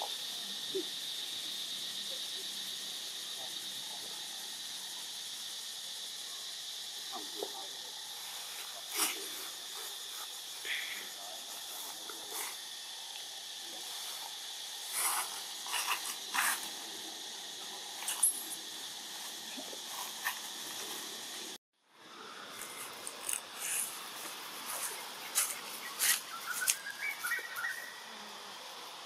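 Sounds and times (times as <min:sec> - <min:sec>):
steady high hiss: 0:00.0 - 0:29.0
rustles and snaps of branches: 0:22.6 - 0:27.7.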